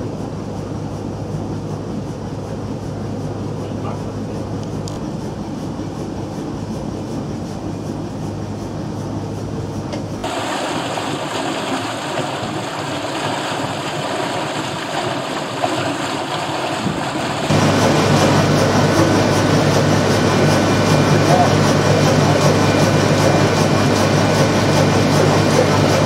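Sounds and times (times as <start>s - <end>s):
low machinery hum: 0.0s - 26.0s
water rushing past hull: 10.2s - 26.0s.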